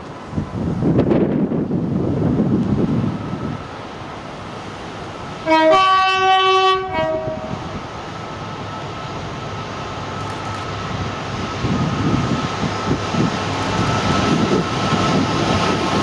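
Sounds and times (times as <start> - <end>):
freight train rumble: 0.0 - 16.0
locomotive two-tone horn: 5.4 - 7.7.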